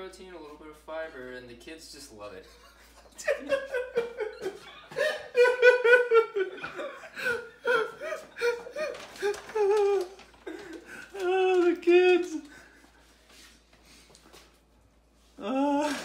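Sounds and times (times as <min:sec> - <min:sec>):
men laughing: 0:02.5 - 0:11.0.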